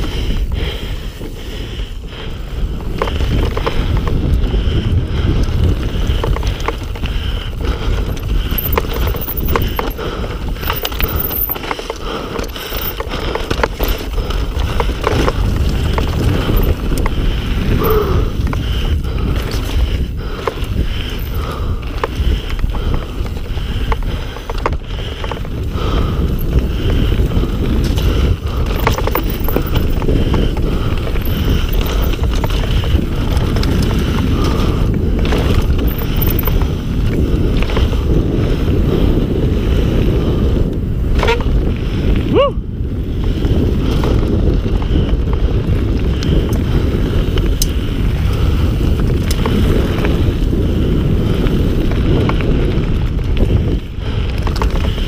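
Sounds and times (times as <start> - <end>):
bike tyres and frame rattling: 0.0 - 55.0
wind buffeting on microphone: 0.0 - 55.0.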